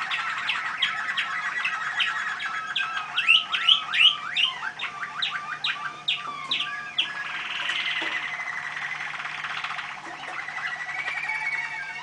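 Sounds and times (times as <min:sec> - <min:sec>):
songbird singing: 0:00.0 - 0:12.0.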